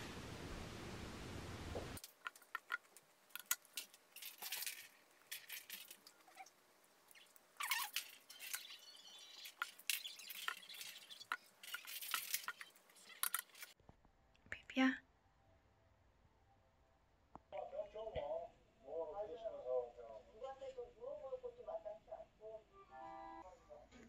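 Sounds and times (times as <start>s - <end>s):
faint room hiss: 0.0s - 13.8s.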